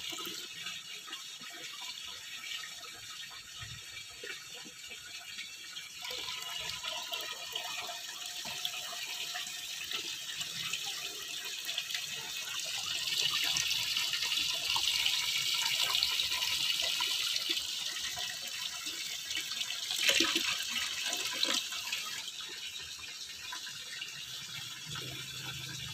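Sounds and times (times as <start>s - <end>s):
tap pouring into a bucket: 0.0s - 25.9s.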